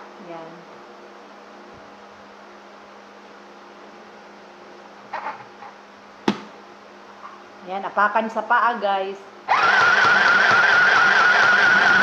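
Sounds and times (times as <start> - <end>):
sewing machine motor humming: 9.5 - 12.0.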